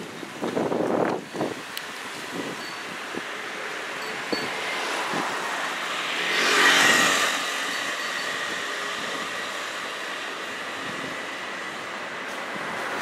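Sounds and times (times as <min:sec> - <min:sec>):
street background noise: 0:00.0 - 0:13.0
car passing by: 0:04.2 - 0:13.0.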